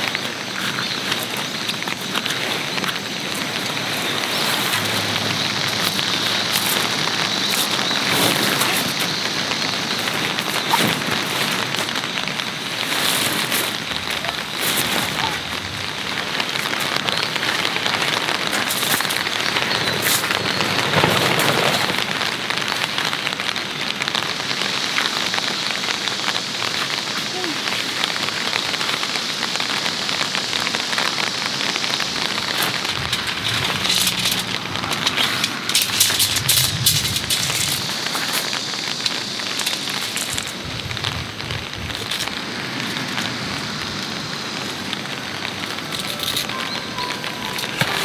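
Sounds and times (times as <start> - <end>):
nylon fabric rustling and flapping: 0.0 - 23.6, 31.8 - 43.3
sharp fabric crinkles: 0.0 - 24.1, 31.8 - 43.4
steady hiss: 0.0 - 48.0.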